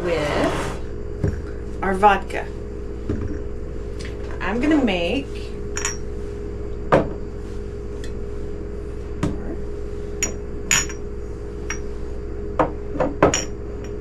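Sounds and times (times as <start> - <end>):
steady hum: 0.0 - 14.0
glass bottles clinking on countertop: 5.8 - 6.0, 10.2 - 11.0, 13.2 - 14.0.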